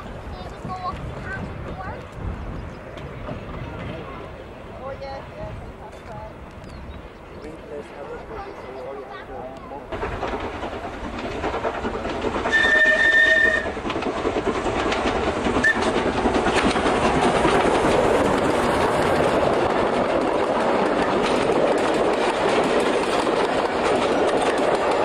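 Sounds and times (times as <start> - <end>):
train rumbling past: 0.0 - 25.0
wheels clicking over rail joints: 9.4 - 25.0
steam locomotive whistle: 12.5 - 13.8, 15.6 - 16.0.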